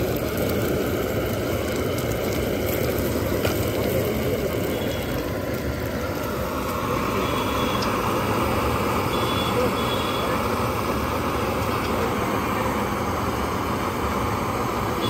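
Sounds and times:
eggs sizzling in oil: 0:00.0 - 0:15.0
gas burner roaring: 0:00.0 - 0:15.0.

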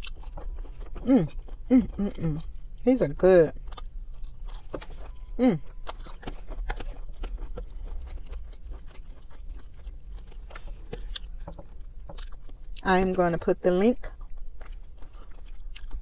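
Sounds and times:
chewing and mouth sounds: 0:00.0 - 0:02.9, 0:03.5 - 0:16.0
person humming mm: 0:01.0 - 0:02.4.

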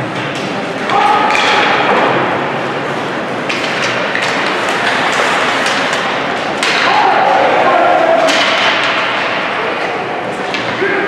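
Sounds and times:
hockey sticks clacking puck: 0:00.0 - 0:02.4, 0:03.0 - 0:11.0
crowd voices in arena: 0:00.0 - 0:11.0
skates on ice: 0:03.5 - 0:10.0.

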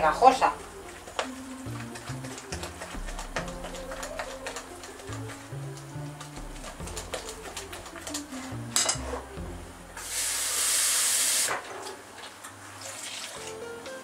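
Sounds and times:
running tap water: 0:00.0 - 0:13.8
whisk stirring batter in glass bowl: 0:00.3 - 0:09.1.

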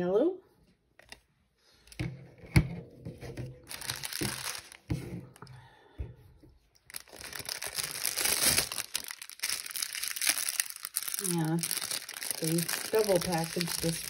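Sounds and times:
plastic packaging crinkling and tearing: 0:03.6 - 0:04.9, 0:06.7 - 0:14.0.

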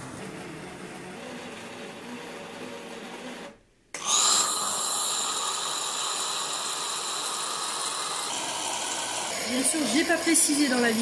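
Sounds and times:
steam frothing milk hiss: 0:04.0 - 0:11.0.

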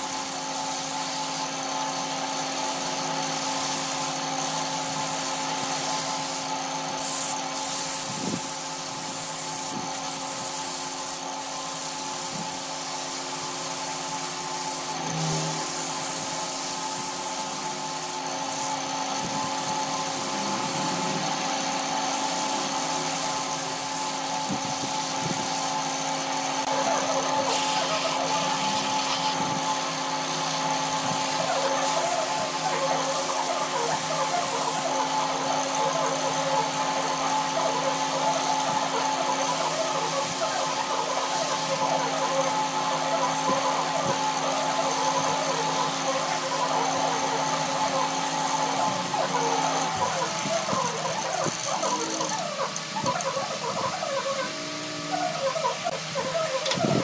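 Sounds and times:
sandpaper rasping on spinning wood: 0:00.0 - 0:57.0
wood lathe humming: 0:18.1 - 0:22.8.

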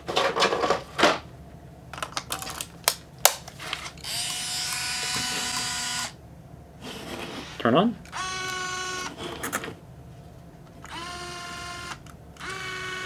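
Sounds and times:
camera motor whirring: 0:04.0 - 0:06.2, 0:08.1 - 0:09.3, 0:10.8 - 0:13.0.

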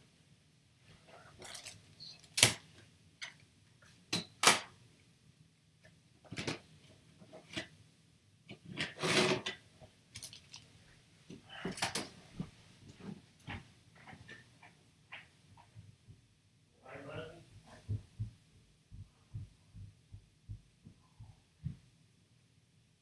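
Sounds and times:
rustling: 0:00.8 - 0:02.8.

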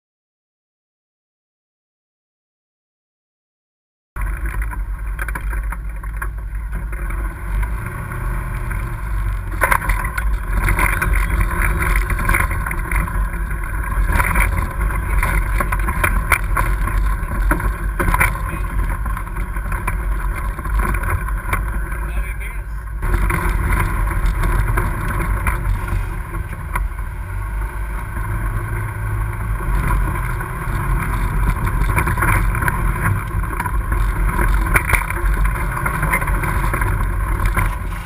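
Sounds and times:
knocks and rattles from bumps: 0:04.2 - 0:22.2
vehicle engine drone: 0:04.2 - 0:38.0.

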